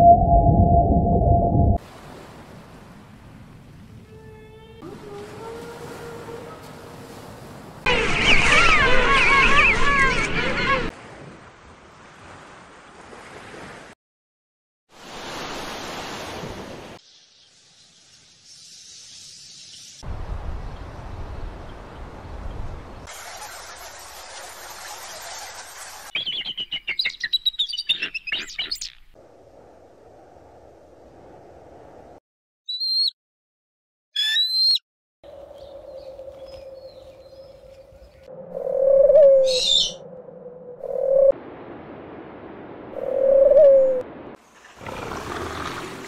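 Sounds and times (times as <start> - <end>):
low rumble: 0.0 - 1.8
loud high chirping calls: 7.9 - 10.9, 26.1 - 29.0, 32.7 - 33.2, 34.2 - 34.8, 39.4 - 40.0
owl hooting: 38.5 - 40.0, 43.0 - 44.0.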